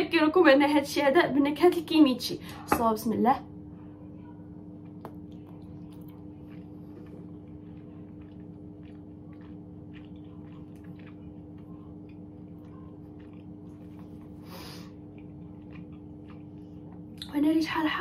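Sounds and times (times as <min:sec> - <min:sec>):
steady low hum: 0:00.0 - 0:18.0
person chewing rice cakes: 0:04.8 - 0:17.3.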